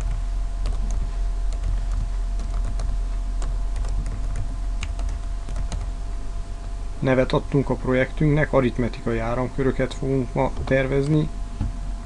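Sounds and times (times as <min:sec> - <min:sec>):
keyboard typing: 0:00.0 - 0:05.9
steady low hum: 0:00.0 - 0:12.0.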